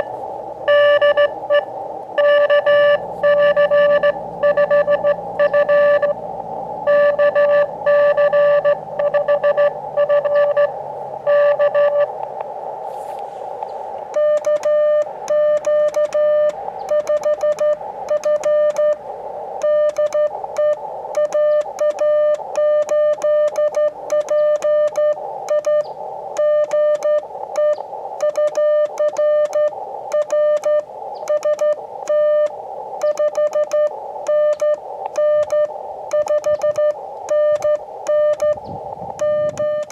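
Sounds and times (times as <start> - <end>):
morse code tones: 0.0 - 12.2, 14.1 - 39.9
receiver hiss: 0.0 - 39.9.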